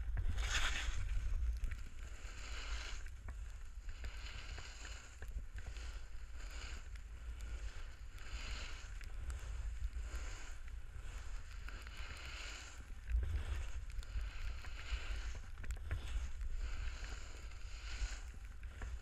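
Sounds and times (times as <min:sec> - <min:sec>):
wind rumble on microphone: 0:00.0 - 0:19.0
snowboard scraping over snow: 0:00.2 - 0:01.4.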